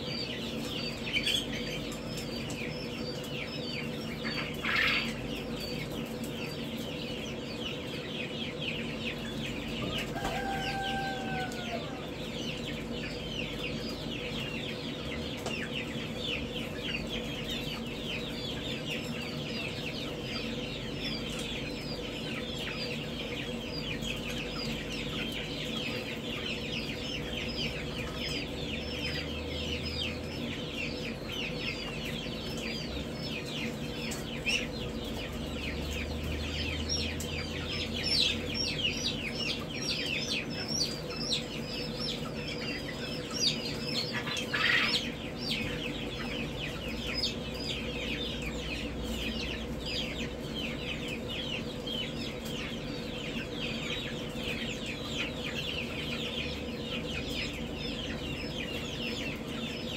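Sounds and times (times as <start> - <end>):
chicks peeping: 0.0 - 59.9.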